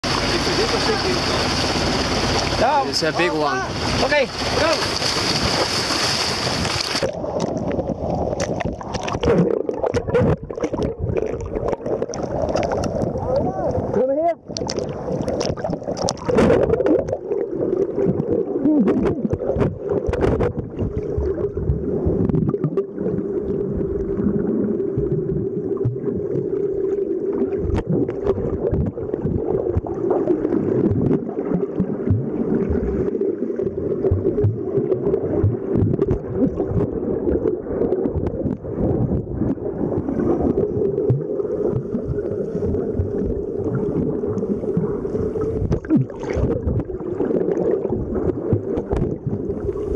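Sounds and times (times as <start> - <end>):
muffled underwater drone: 0.0 - 5.0
water splashing: 0.0 - 49.9
underwater knocks and bumps: 3.2 - 49.9.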